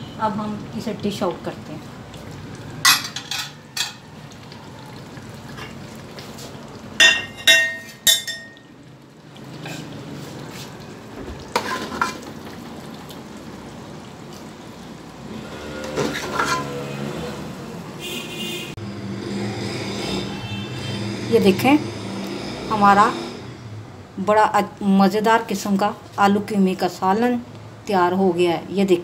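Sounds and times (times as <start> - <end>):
metal ladle scraping a pot: 9.6 - 10.0, 11.5 - 12.2, 15.4 - 17.1.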